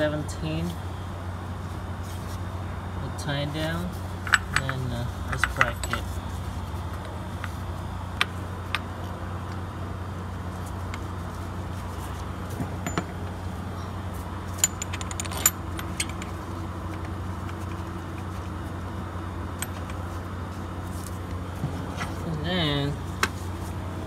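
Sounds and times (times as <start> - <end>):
steady low hum: 0.0 - 24.0
metallic clinks of sockets and bolts: 4.2 - 6.1, 12.8 - 13.1, 14.6 - 16.4.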